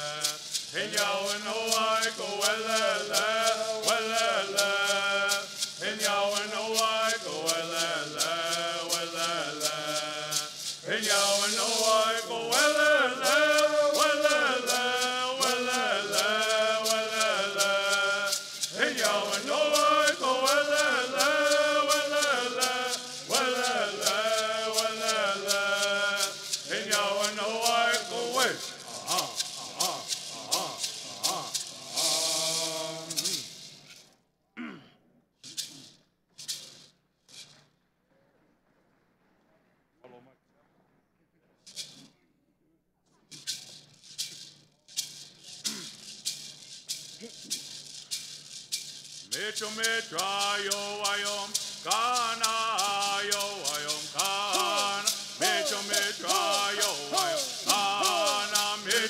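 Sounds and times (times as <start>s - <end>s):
men singing in unison: 0.0s - 33.7s, 49.3s - 59.0s
gourd rattles: 0.0s - 34.0s, 43.4s - 59.0s.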